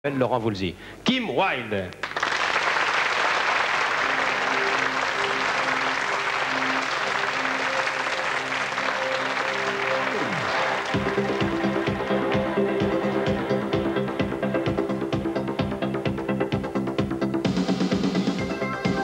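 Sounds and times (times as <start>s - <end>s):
studio audience applauding: 2.0s - 13.8s
repeating keyboard notes: 4.0s - 19.0s
synth-pop band playing: 4.0s - 19.0s.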